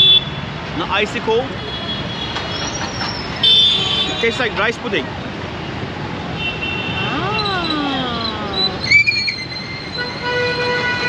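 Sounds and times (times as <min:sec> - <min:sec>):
city traffic engine noise: 0:00.0 - 0:11.0
vehicle horns: 0:03.3 - 0:04.6, 0:06.4 - 0:07.8, 0:08.9 - 0:11.0.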